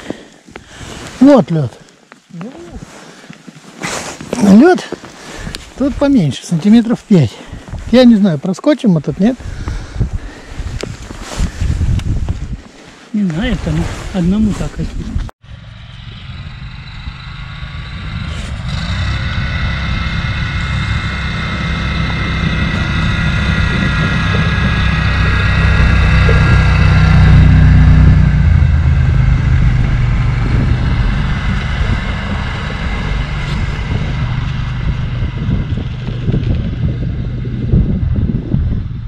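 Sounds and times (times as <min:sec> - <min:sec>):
vehicle engine passing by: 0:15.4 - 0:38.9.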